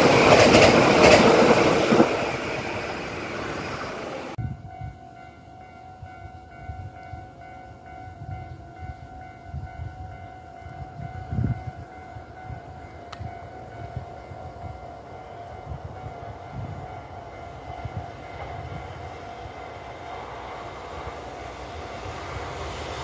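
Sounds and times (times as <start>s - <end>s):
wind rumble on microphone: 4.4s - 5.1s, 8.2s - 11.8s
short click: 13.2s - 23.0s
thin steady whine: 13.2s - 23.0s
train passing: 13.2s - 23.0s.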